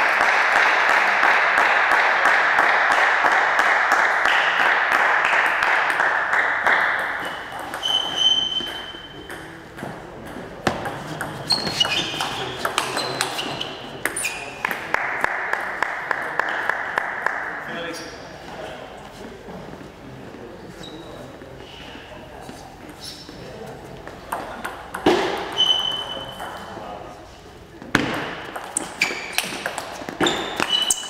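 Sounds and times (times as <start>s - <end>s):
crowd noise in a sports hall: 0.0s - 31.0s
table tennis ball pinging: 6.6s - 14.8s, 24.3s - 26.7s, 27.9s - 31.0s.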